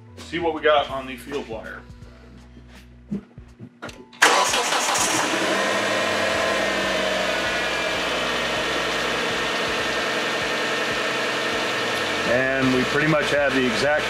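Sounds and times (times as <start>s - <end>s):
faint starter clicks: 4.2s - 5.4s
car engine starting and idling: 4.2s - 14.0s.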